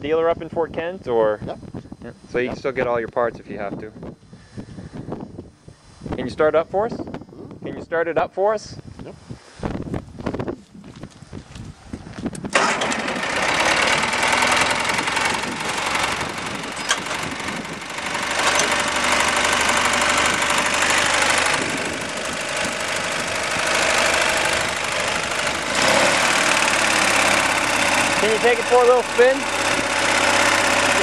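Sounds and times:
tractor engine starting and running: 11.0s - 31.0s.

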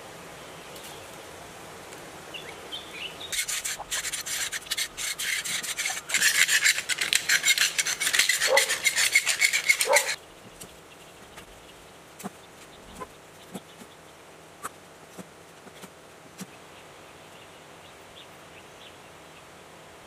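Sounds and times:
rough scraping on copper wire: 3.3s - 10.2s.

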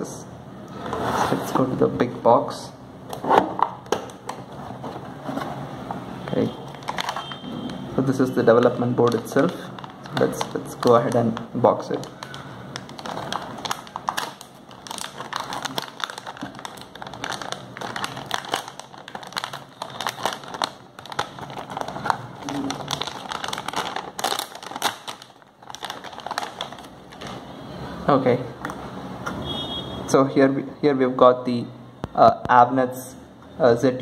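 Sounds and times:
plastic bag crinkling: 6.3s - 27.6s.

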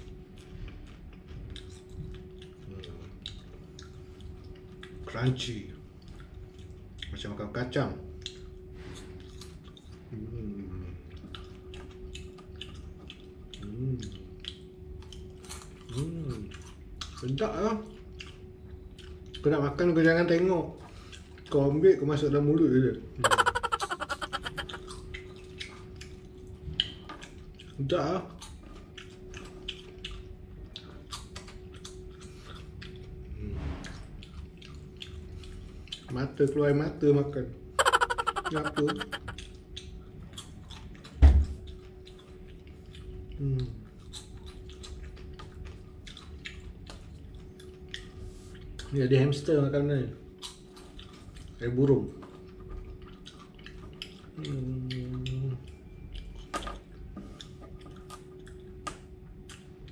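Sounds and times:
person chewing crunchy food: 0.3s - 5.0s, 11.1s - 17.3s, 42.0s - 48.1s, 52.4s - 55.4s
crunchy chewing: 0.3s - 5.1s, 11.0s - 19.5s, 23.2s - 33.2s, 34.2s - 36.1s, 37.8s - 49.0s, 50.3s - 51.6s, 52.2s - 56.5s
person humming: 23.2s - 24.8s, 37.8s - 39.4s.

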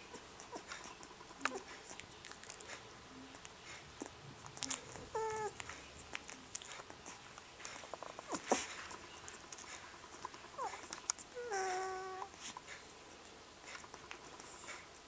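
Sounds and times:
puppy squeaking: 0.0s - 2.4s, 4.0s - 7.2s, 10.1s - 12.3s
puppy whimpering: 0.0s - 12.8s.

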